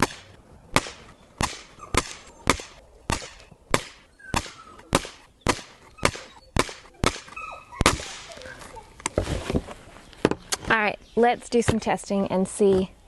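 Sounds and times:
sharp knocks: 0.0s - 8.2s.

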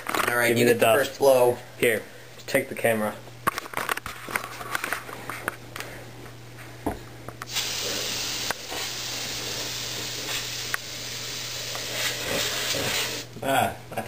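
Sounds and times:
compressed air can spraying: 7.5s - 13.3s.

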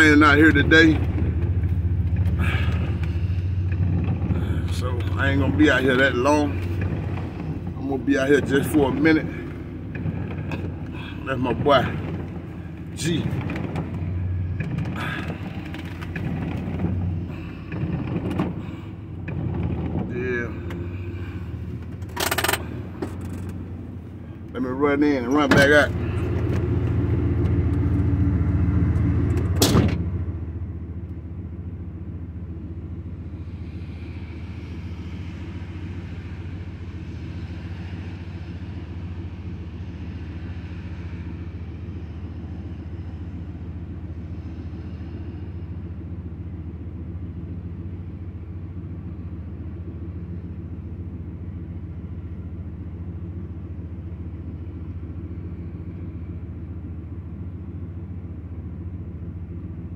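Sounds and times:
car engine idling: 0.0s - 59.9s
car door shutting: 29.3s - 30.1s.

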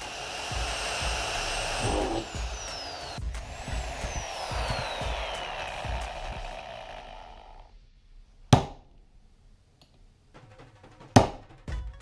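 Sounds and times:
electric drill whirring: 0.0s - 7.7s.

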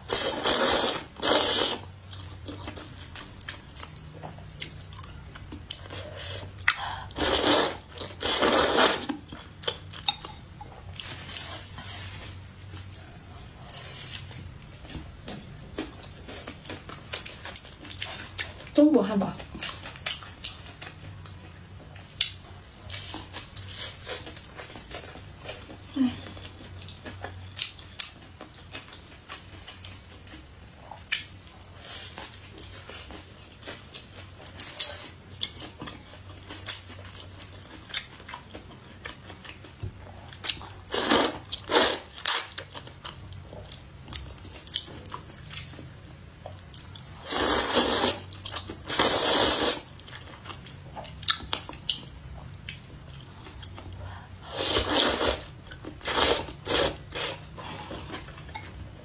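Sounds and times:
loud noodle slurps: 0.1s - 1.9s, 7.2s - 9.1s, 40.9s - 42.5s, 47.2s - 48.2s, 48.9s - 49.9s, 54.5s - 57.4s.

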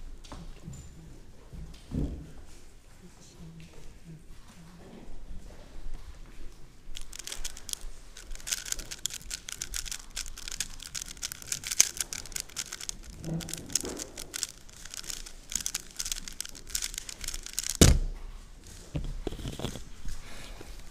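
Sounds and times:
rapid clicking cube turns: 6.9s - 19.9s.

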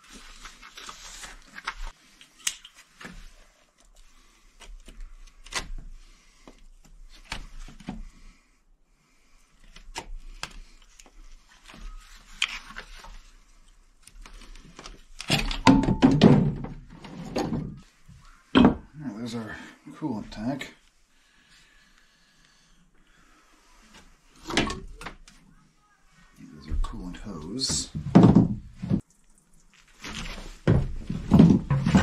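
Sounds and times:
hoses clicking and scraping: 0.0s - 8.2s, 9.4s - 15.7s, 29.0s - 32.0s
rubbing and scraping: 29.8s - 32.0s.

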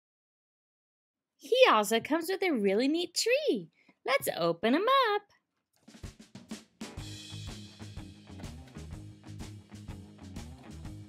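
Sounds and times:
drum hits: 5.9s - 9.0s.

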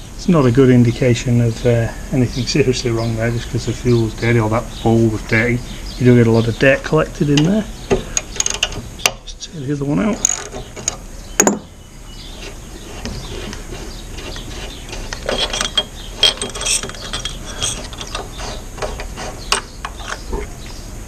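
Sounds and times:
metal tools and parts clinking: 7.4s - 8.8s, 10.1s - 11.7s, 14.6s - 20.3s
sharp metal knocks: 10.2s - 11.7s.

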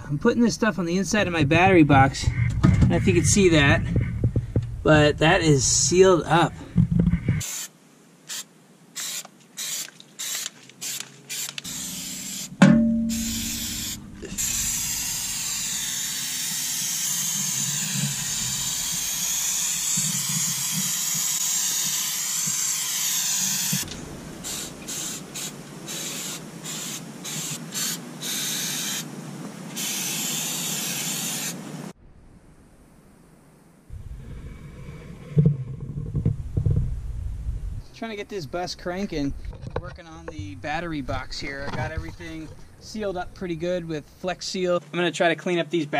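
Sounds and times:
aerosol can spraying: 9.0s - 29.1s, 29.7s - 31.6s
sharp metallic knock: 12.6s - 14.2s.

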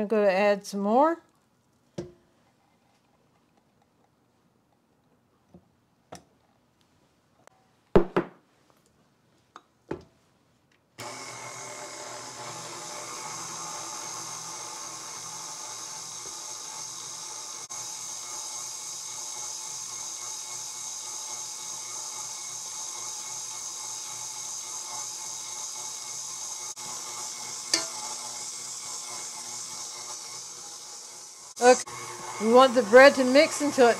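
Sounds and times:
stand mixer kneading dough: 11.0s - 33.9s.

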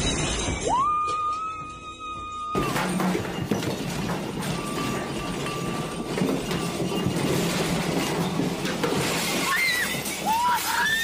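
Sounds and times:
furniture and objects rattling: 2.6s - 11.0s.

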